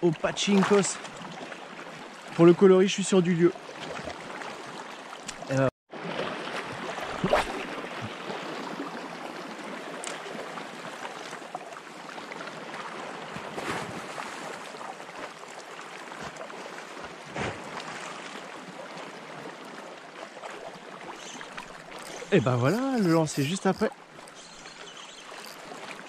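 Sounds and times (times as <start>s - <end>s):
sea lapping against rocks: 5.9s - 9.1s, 12.5s - 19.5s.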